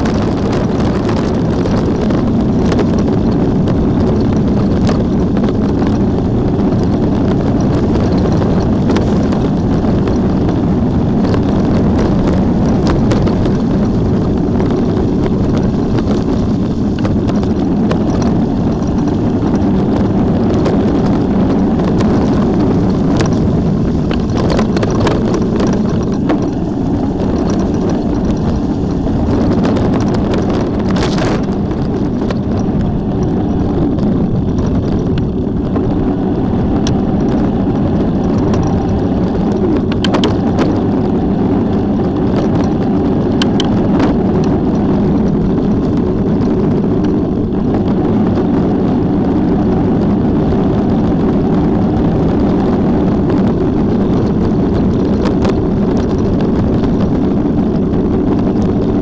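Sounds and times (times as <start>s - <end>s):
small clicks and ticks: 0.0s - 36.0s, 36.7s - 48.6s
rumbling travel noise: 0.0s - 59.0s
wind on microphone: 0.0s - 59.0s.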